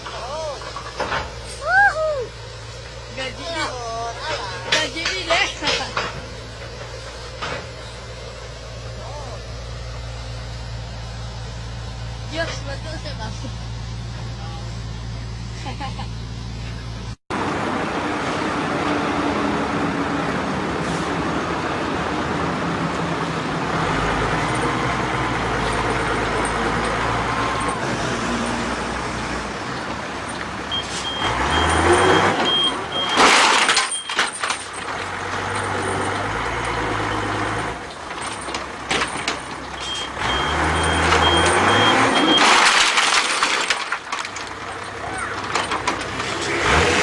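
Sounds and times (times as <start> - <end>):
truck engine running: 0.0 - 47.0.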